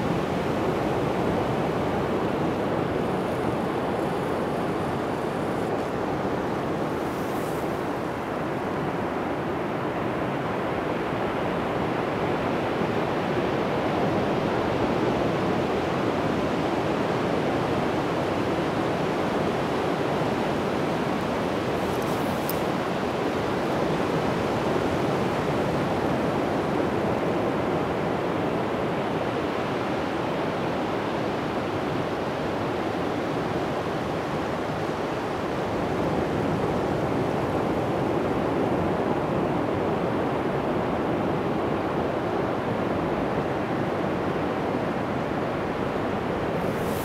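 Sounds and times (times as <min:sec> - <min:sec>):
surf breaking on sandy beach: 0:46.2 - 0:47.0.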